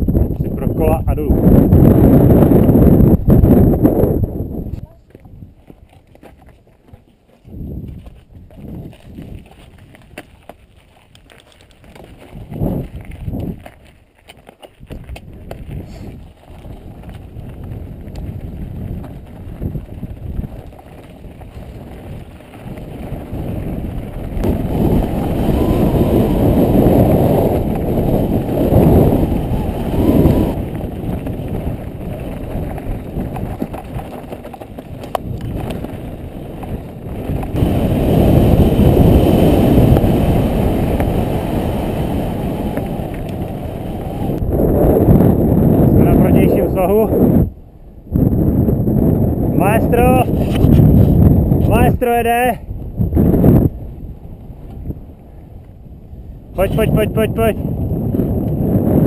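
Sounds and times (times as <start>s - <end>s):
wind buffeting microphone: 0.0s - 59.0s
bike rolling on rocky trail: 1.6s - 47.2s
bike knocking over stones: 7.9s - 25.1s, 30.6s - 37.6s.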